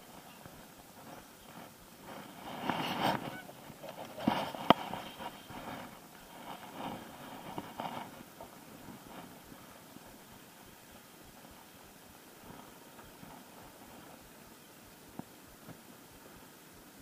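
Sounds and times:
geese honking: 3.1 - 3.6.

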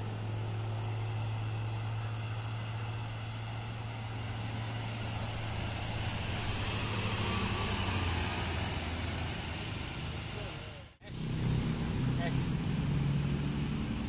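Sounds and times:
bus diesel engine droning: 0.0 - 14.0
tyres and air rushing hiss: 3.8 - 10.5.

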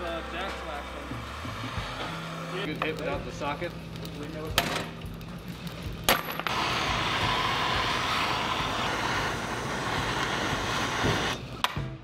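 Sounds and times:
gas torch flame hissing: 0.0 - 11.6.

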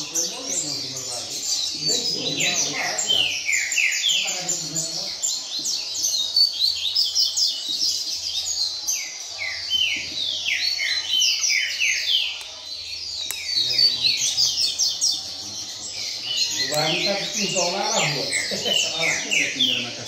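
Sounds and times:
bird singing whistled notes: 0.0 - 20.0.

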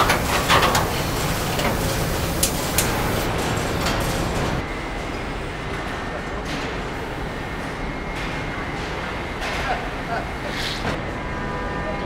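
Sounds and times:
assembly line machinery din: 0.0 - 5.8.

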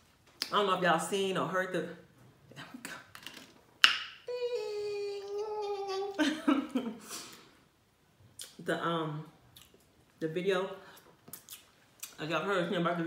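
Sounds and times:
woman's vocal exclamation: 4.3 - 6.2.

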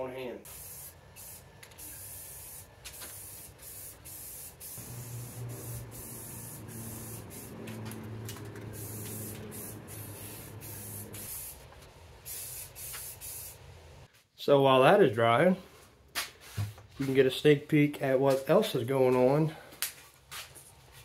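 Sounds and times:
spray paint can hissing: 0.5 - 11.6, 12.2 - 13.6
low steady hum: 4.8 - 11.3.

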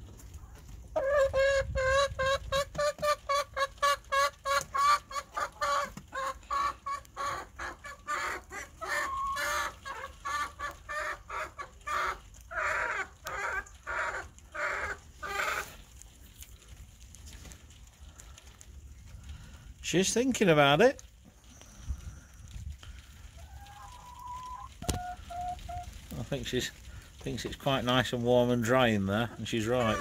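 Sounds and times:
hen clucking: 0.1 - 16.1, 21.4 - 27.9, 28.7 - 30.0.

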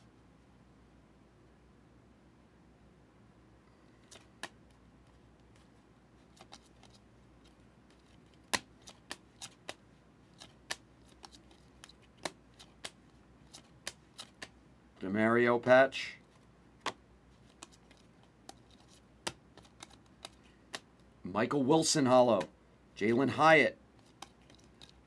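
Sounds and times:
trading cards flipping: 3.9 - 14.6, 16.3 - 21.1, 24.0 - 25.0.

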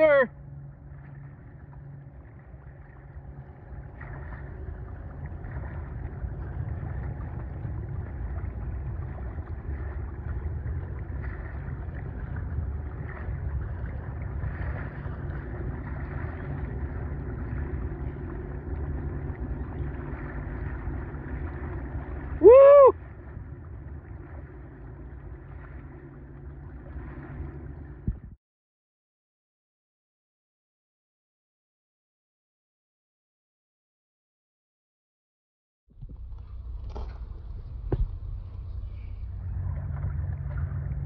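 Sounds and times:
water washing: 1.2 - 28.1
wind buffeting microphone: 3.7 - 24.4, 26.9 - 28.4.

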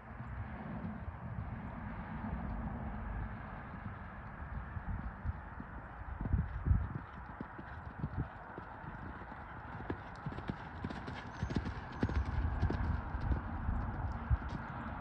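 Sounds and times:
horse hooves thudding on sand: 3.2 - 15.0.

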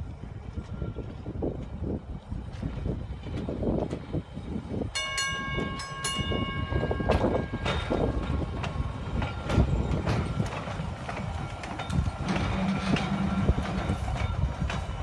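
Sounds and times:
trolley wheels rumbling on rails: 0.0 - 15.0
trolley gong ringing: 4.9 - 10.2.

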